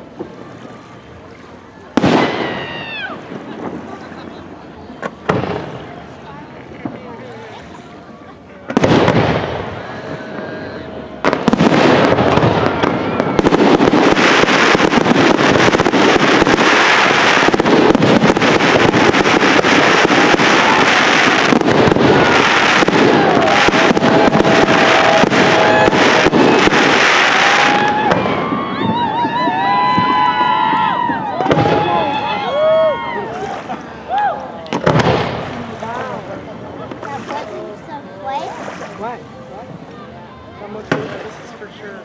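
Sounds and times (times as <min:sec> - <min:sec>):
fireworks bursting and crackling: 0:01.9 - 0:07.4, 0:08.6 - 0:37.4, 0:40.7 - 0:42.0
fireworks whistles: 0:11.2 - 0:32.2.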